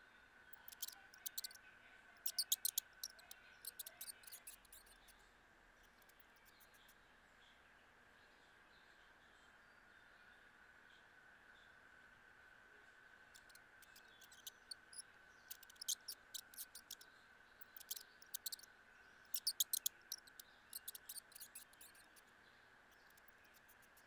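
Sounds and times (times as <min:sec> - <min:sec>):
faint high hum: 0:00.0 - 0:24.0
mouse ticks and squeaks: 0:00.5 - 0:01.6, 0:02.2 - 0:05.2, 0:05.8 - 0:07.0, 0:13.3 - 0:24.0.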